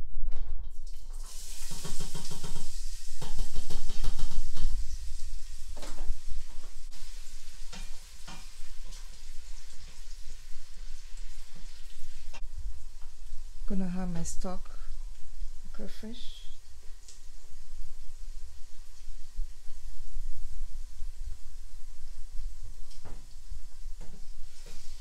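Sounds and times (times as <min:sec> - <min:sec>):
onions sizzling in hot oil: 0:00.8 - 0:13.6, 0:22.8 - 0:25.0.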